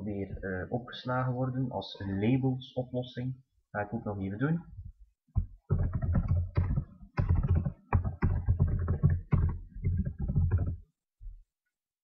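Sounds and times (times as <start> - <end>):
computer keyboard typing: 5.4 - 10.8.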